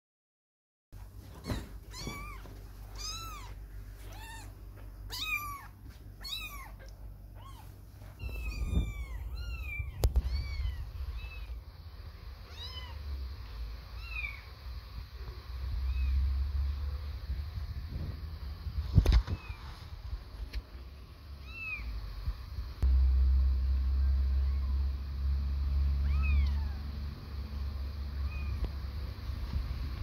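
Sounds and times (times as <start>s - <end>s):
kittens mewing: 1.4s - 11.6s, 26.0s - 26.9s
low rumble: 7.0s - 21.0s, 21.9s - 30.0s.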